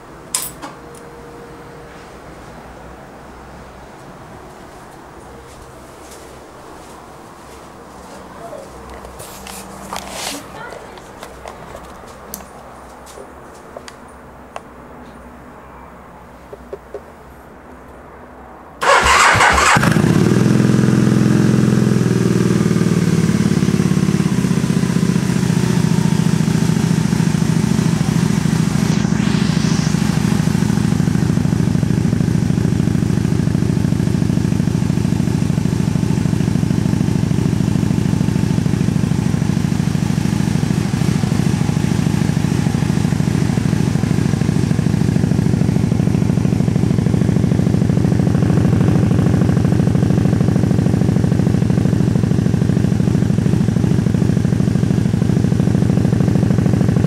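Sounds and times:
motorcycle engine cranking: 18.8 - 20.4
motorcycle engine idling: 18.8 - 29.2, 30.2 - 57.0.

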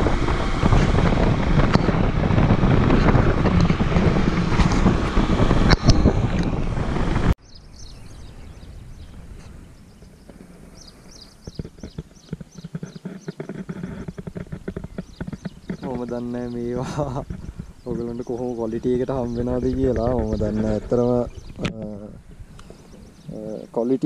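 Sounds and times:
wind noise on microphone: 0.0 - 24.0
birds chirping: 7.4 - 24.0.

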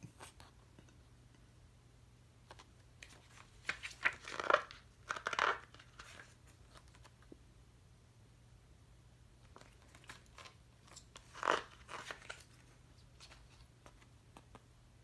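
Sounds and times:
booklet pages rustling: 2.4 - 7.3, 9.4 - 14.7.

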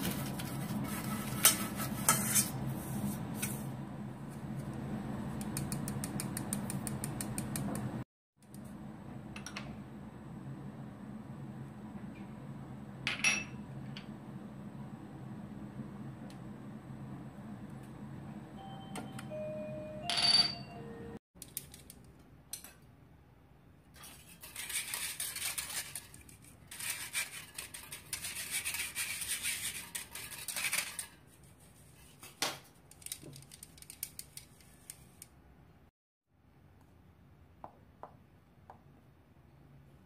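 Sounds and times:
whisk scraping a mesh sieve: 0.0 - 3.6, 24.0 - 32.1.

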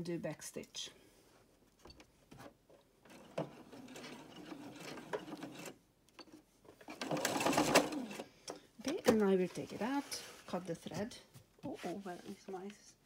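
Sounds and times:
sewing machine stitching: 3.1 - 5.8, 6.8 - 8.3.

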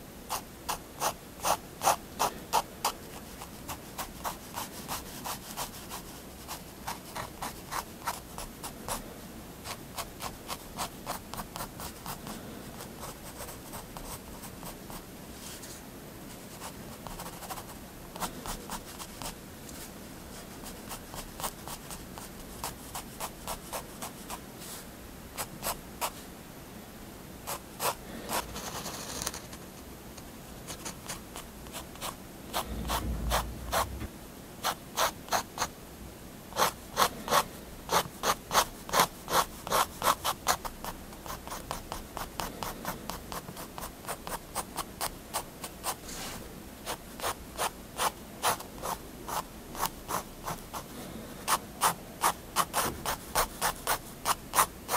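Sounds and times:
dull low rub: 32.6 - 34.2.

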